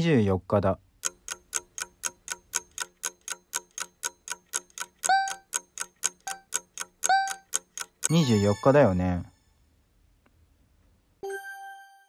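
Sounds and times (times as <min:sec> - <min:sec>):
fast clock ticking: 0:01.0 - 0:08.4
bell-like ding: 0:08.1 - 0:09.5.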